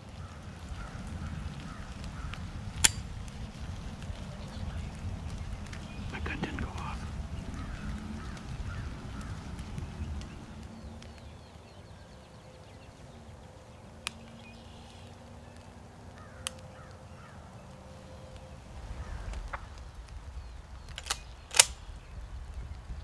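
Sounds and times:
faint birds calling: 0.0 - 23.0
shotgun trigger clicks: 2.8 - 3.1, 20.9 - 21.9.

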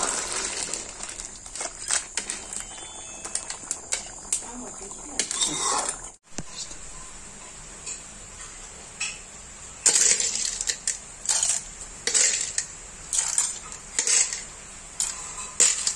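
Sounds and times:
metal ladle scraping a pan: 5.0 - 7.1, 9.8 - 15.9.

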